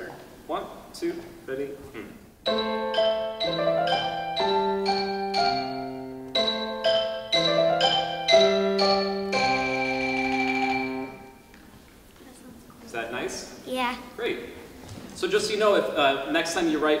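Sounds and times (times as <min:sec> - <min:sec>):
grand piano chords: 0:02.4 - 0:11.4
marimba notes: 0:02.4 - 0:11.5.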